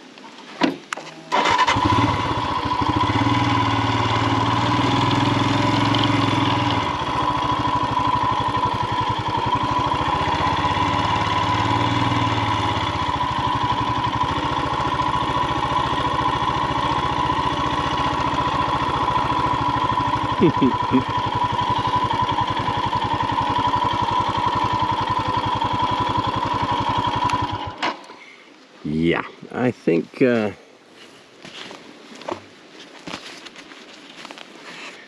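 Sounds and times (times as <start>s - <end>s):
motorcycle engine running: 1.3s - 27.8s.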